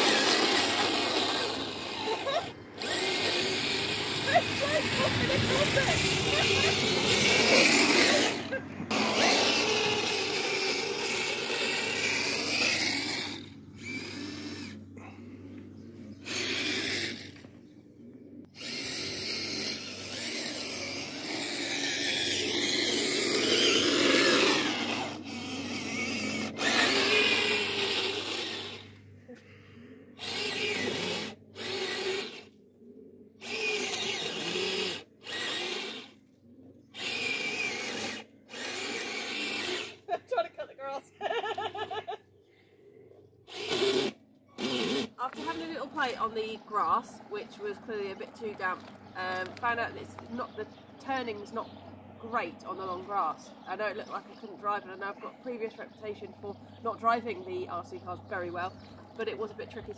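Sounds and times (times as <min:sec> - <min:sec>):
electric motors whining: 0:00.0 - 0:42.2, 0:43.0 - 0:59.9.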